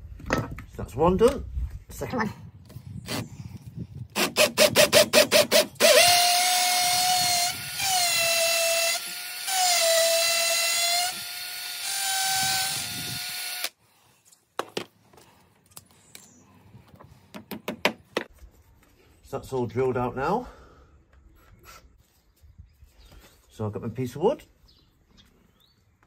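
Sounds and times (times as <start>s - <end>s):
cordless drill whining: 4.2s - 13.8s.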